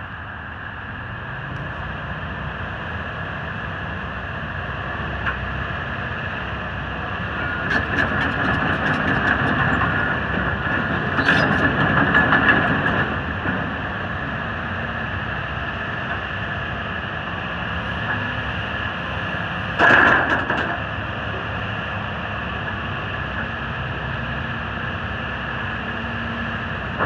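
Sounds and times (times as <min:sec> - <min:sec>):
excavator diesel engine running: 0:00.1 - 0:27.0.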